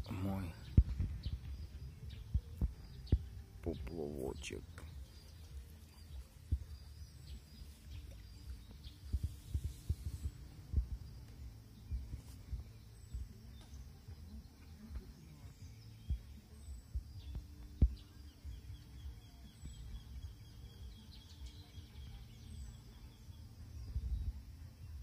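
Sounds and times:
small birds chirping: 0.0 - 25.0
low rumble: 4.8 - 14.6.

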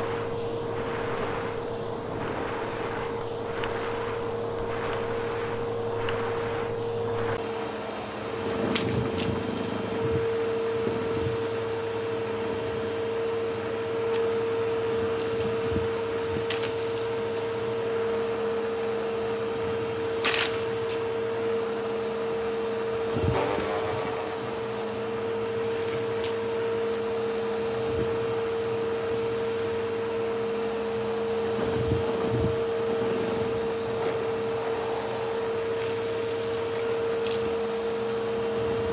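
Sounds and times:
debris clicking in vacuum: 0.0 - 7.4, 20.2 - 21.0
faint high whistle: 0.0 - 38.9
vacuum cleaner motor whine: 0.0 - 38.9.

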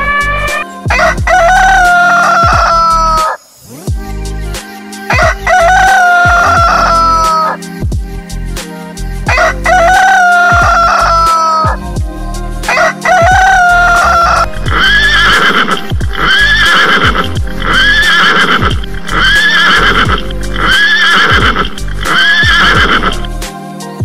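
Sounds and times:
rooster crowing: 0.0 - 3.5, 5.1 - 7.6, 9.3 - 11.8, 12.7 - 23.3
background music with steady beat: 0.0 - 24.0
horse neighing: 14.6 - 23.3.

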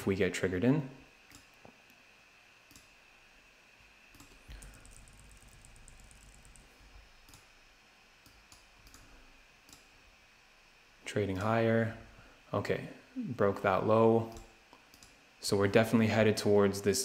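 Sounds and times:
computer mouse clicks: 2.7 - 2.9, 4.1 - 7.5, 8.2 - 9.9, 14.3 - 15.2.

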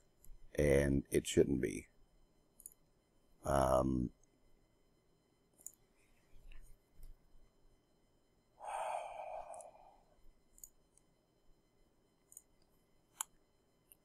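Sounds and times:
computer mouse clicks: 2.6 - 2.8, 5.6 - 5.8, 10.5 - 11.1, 12.3 - 14.0
breathy sigh: 8.6 - 10.1.

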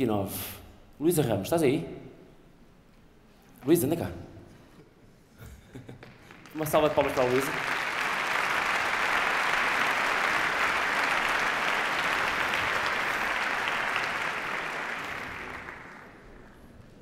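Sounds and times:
audience applauding: 6.0 - 17.0.

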